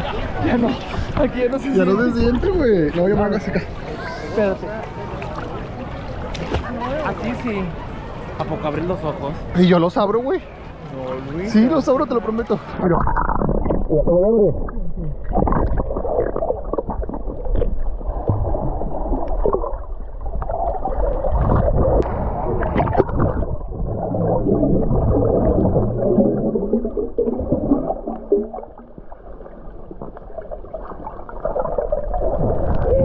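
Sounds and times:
underwater water rushing: 12.6 - 33.0
bubbles gurgling: 12.8 - 33.0.

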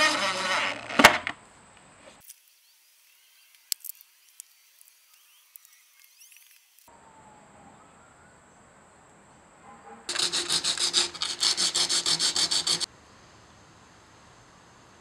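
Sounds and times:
hand rubbing wood edge: 10.1 - 12.9.

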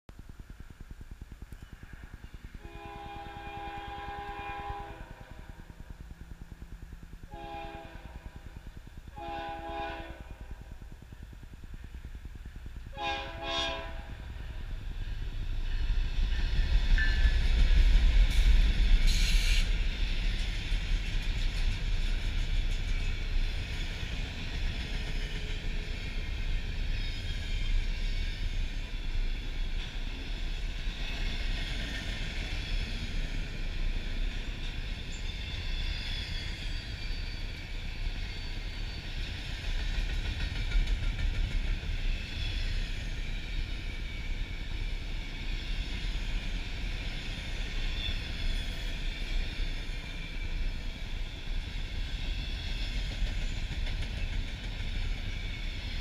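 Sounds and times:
diesel locomotives rumbling past: 1.5 - 56.0
locomotive horn blasts: 2.6 - 5.4, 7.3 - 8.3, 9.1 - 10.4, 12.9 - 14.2
freight cars rolling on rails: 10.2 - 56.0.

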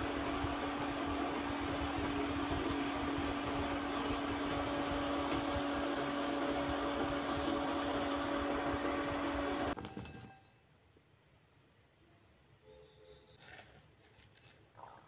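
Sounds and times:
fan whirring hum: 0.0 - 10.4.

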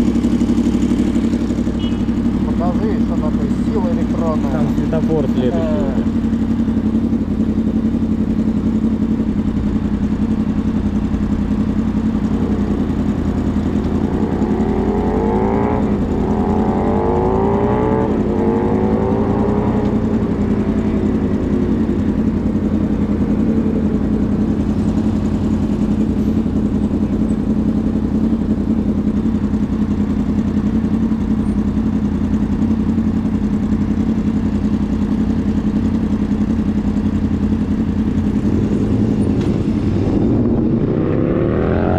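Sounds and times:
wind and road rumble: 0.0 - 41.9
vehicle accelerating: 10.9 - 29.8, 36.4 - 41.9.

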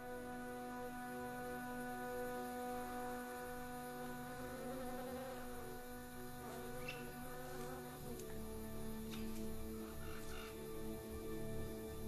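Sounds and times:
droning background music: 0.0 - 12.0
insect buzzing: 0.0 - 12.0.

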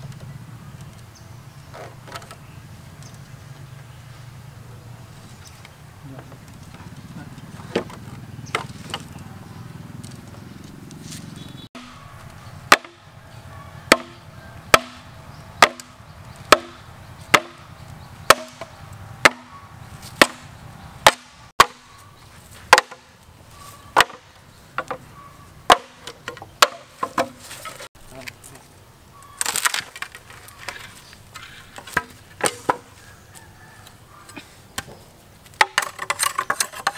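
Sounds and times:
mallet knocking machete into bamboo: 12.7 - 13.0, 13.9 - 15.0, 15.6 - 17.6, 18.3 - 19.5, 20.2 - 21.8, 22.7 - 23.1, 24.0 - 24.2, 25.7 - 27.9.

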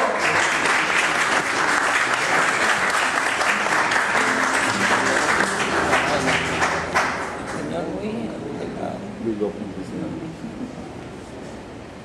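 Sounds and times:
audience applauding: 0.0 - 7.9.

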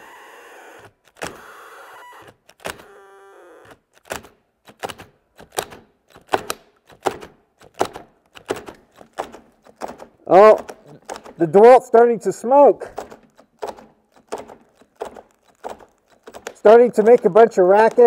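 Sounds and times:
drill motor hum: 0.0 - 3.8
drills clunking: 12.8 - 18.0.

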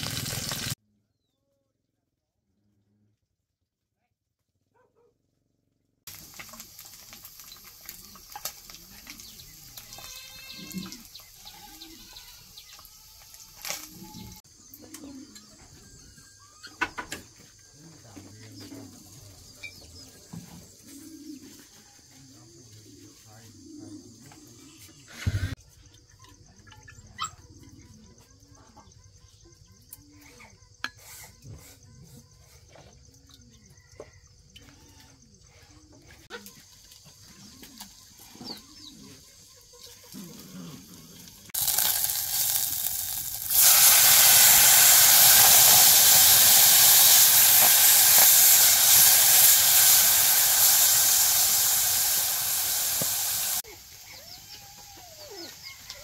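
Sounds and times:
steady hiss: 41.6 - 54.8
faint low animal calls: 53.7 - 56.0.

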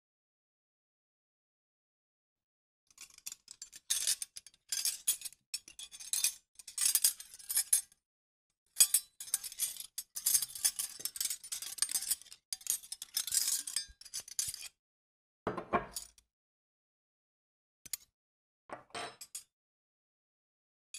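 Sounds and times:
cutlery clinking on a table: 15.5 - 16.2, 18.7 - 19.5.

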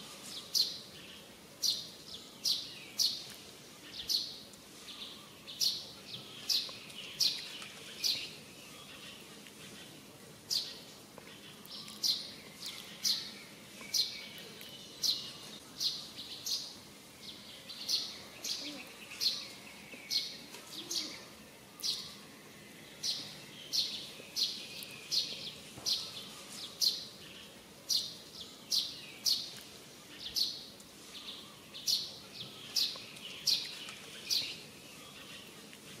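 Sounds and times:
bird chirping: 0.0 - 36.0.

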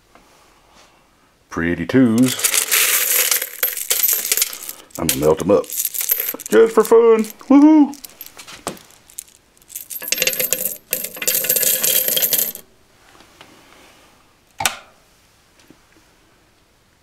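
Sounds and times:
coins clinking and jingling: 2.2 - 12.6.

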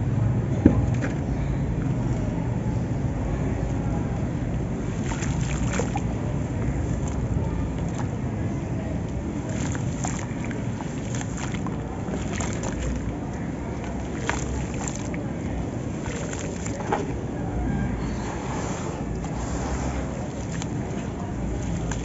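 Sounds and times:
steady low rumble: 0.0 - 22.0
hands sloshing wet sand in water: 4.3 - 17.4, 18.4 - 22.0.

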